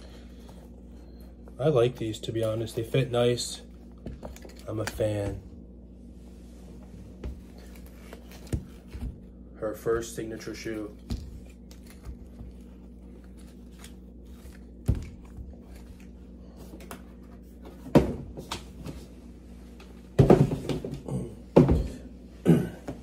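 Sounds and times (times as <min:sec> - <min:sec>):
shoebox thumps and knocks: 0:20.2 - 0:22.0.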